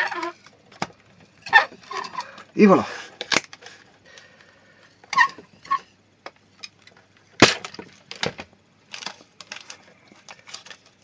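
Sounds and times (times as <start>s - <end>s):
short squeaks: 5.1s - 5.9s.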